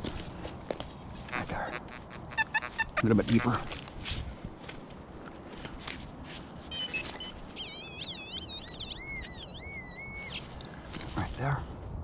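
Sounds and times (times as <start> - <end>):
metal detector beeps: 1.3 - 3.9, 6.7 - 10.5
warbling electronic tones: 1.3 - 3.9, 6.7 - 10.5.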